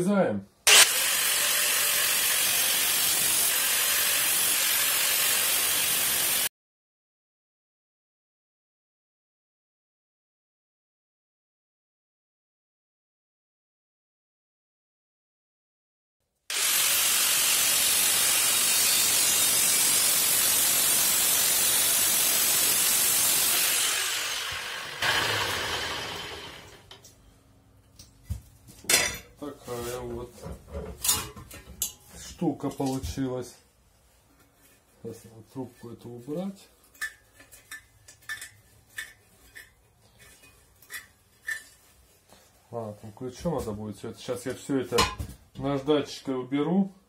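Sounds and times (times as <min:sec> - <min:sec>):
angle grinder cutting steel: 0:00.7 - 0:06.5, 0:16.5 - 0:27.0.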